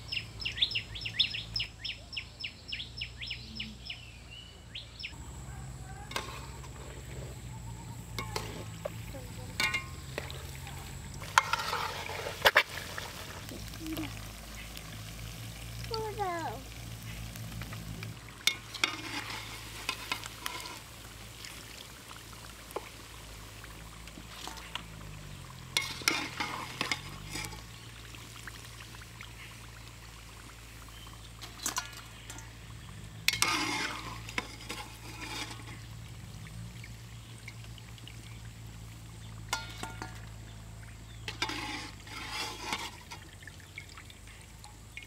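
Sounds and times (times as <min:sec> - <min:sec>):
food sizzling in hot oil: 0:05.2 - 0:45.0
metal spoon scraping wok: 0:06.0 - 0:13.2, 0:17.1 - 0:21.1, 0:25.6 - 0:27.9, 0:31.4 - 0:32.6, 0:33.2 - 0:36.0, 0:39.5 - 0:40.3, 0:41.1 - 0:43.3
oil dripping into pan: 0:08.1 - 0:15.9, 0:16.6 - 0:45.0.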